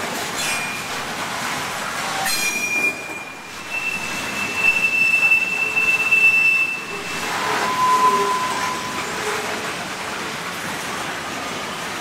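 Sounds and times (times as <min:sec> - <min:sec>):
railroad cars rumbling: 0:00.0 - 0:12.0
steel wheels squealing: 0:00.4 - 0:01.0, 0:02.0 - 0:09.7.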